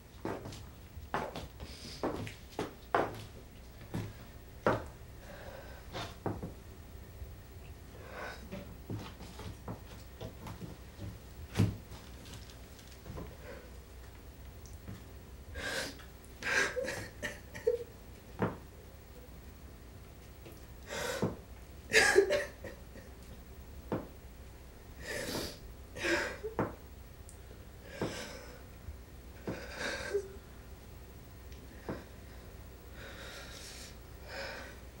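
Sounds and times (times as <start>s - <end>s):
woman sobbing: 16.4s - 17.9s, 21.9s - 23.1s.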